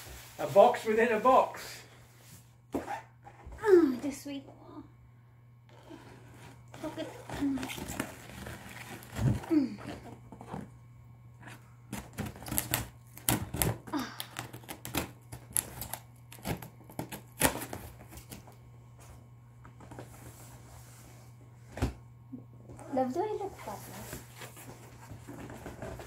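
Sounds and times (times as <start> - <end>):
cardboard flaps rustling: 6.4 - 10.7, 23.6 - 26.0.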